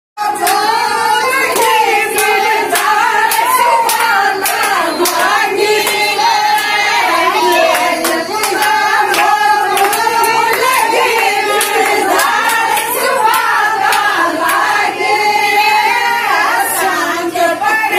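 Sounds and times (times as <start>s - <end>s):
women singing folk song: 0.2s - 17.9s
hand claps: 1.5s - 6.8s, 7.4s - 14.7s.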